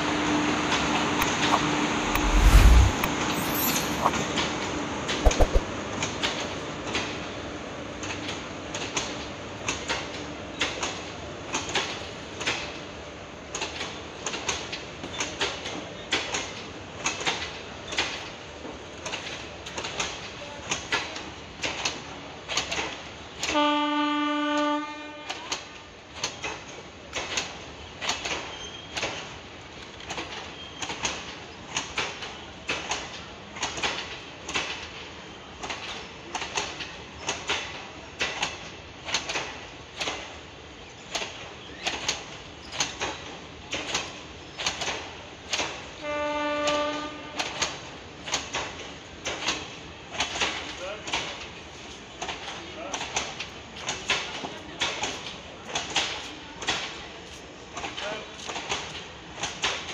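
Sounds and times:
train horn: 0:23.4 - 0:25.6, 0:46.0 - 0:47.8
train wheels clacking: 0:25.3 - 0:46.0, 0:46.6 - 0:59.9.

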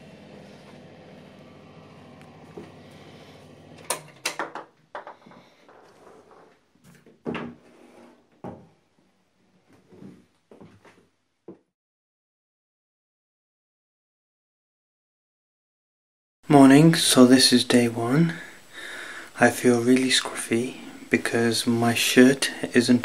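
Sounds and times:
steady hum: 0:00.0 - 0:04.2
knocks and clunks of door fittings: 0:03.9 - 0:05.3.

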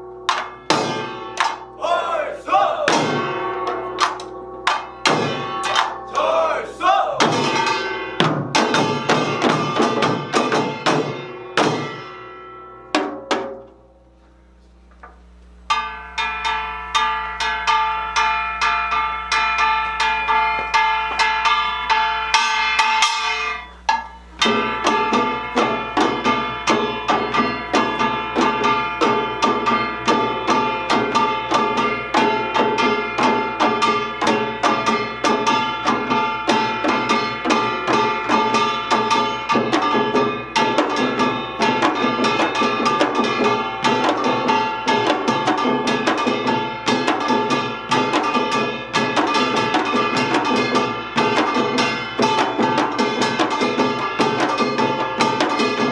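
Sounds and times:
small gong clanging: 0:00.0 - 0:01.8, 0:02.9 - 0:06.6, 0:07.2 - 0:14.0, 0:15.7 - 0:55.9
barrel drums: 0:00.0 - 0:06.3, 0:06.9 - 0:13.8, 0:14.8 - 0:55.9
hourglass drums: 0:00.0 - 0:13.9, 0:15.6 - 0:55.9
large gong ringing: 0:22.3 - 0:36.5.

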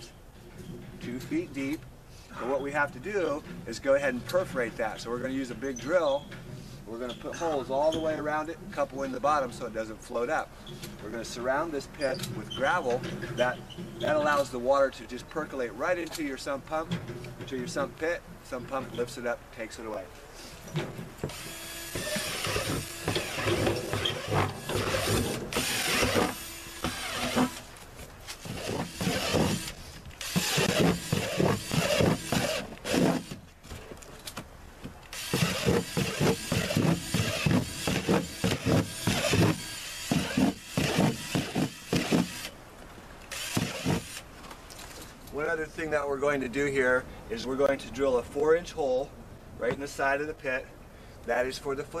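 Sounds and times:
cordless drill boring plastic: 0:21.3 - 0:27.6, 0:28.4 - 0:33.4, 0:35.1 - 0:42.5, 0:43.3 - 0:44.2.

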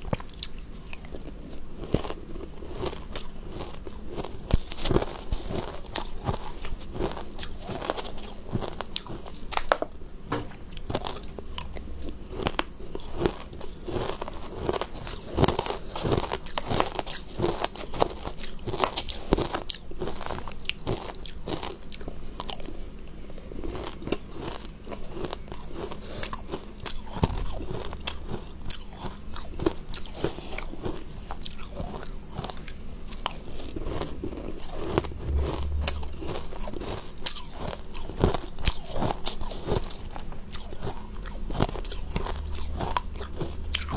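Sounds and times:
person chewing shaved ice: 0:00.0 - 0:43.9.

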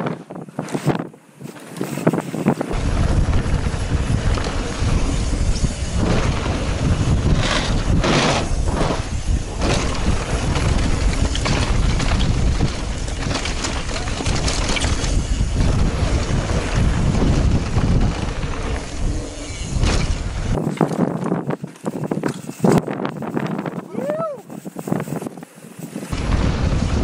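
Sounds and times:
bike rattling: 0:00.0 - 0:27.0
bike tyre noise on dirt: 0:00.0 - 0:27.0
wind buffeting microphone: 0:00.0 - 0:27.0
heavy low rumble: 0:02.7 - 0:20.6, 0:26.1 - 0:27.0.

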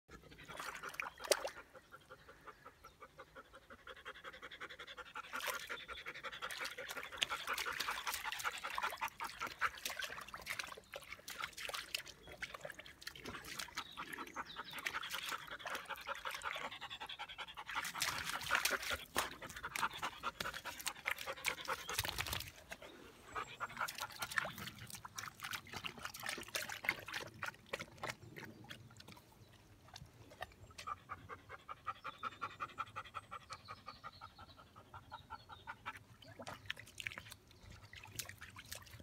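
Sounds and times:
water splashing: 0:06.5 - 0:16.6, 0:17.7 - 0:22.8, 0:23.7 - 0:30.4, 0:36.3 - 0:39.0
dog panting: 0:14.2 - 0:24.7.

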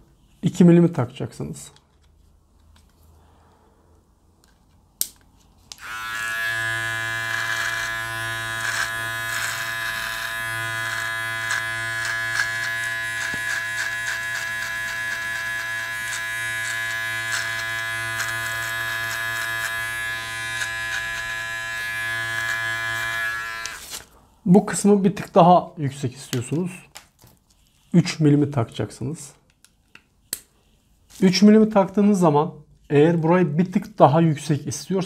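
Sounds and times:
beard trimmer buzzing: 0:05.7 - 0:24.1
crackles of cut hair: 0:05.7 - 0:24.1.

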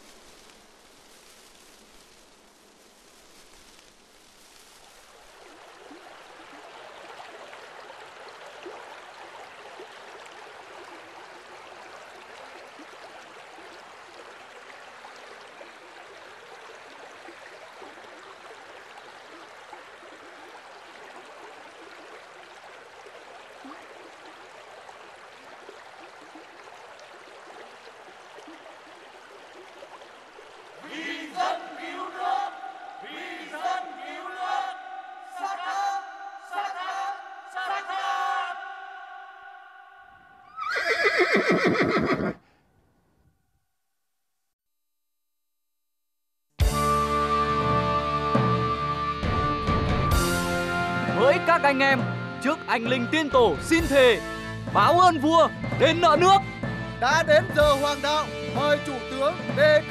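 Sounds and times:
river water flowing: 0:00.0 - 0:42.3, 0:46.7 - 0:59.9
men shouting: 0:30.8 - 0:40.1.

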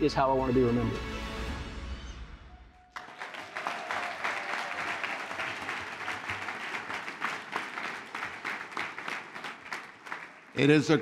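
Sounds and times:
background music: 0:00.0 - 0:02.9
audience applause: 0:02.9 - 0:11.0.

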